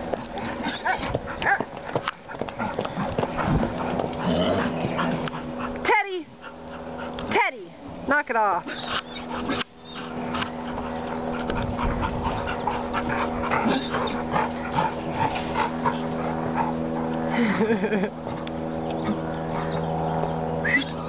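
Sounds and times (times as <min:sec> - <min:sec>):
dog whining and whimpering: 0:08.7 - 0:10.1, 0:13.6 - 0:14.2, 0:20.6 - 0:21.0.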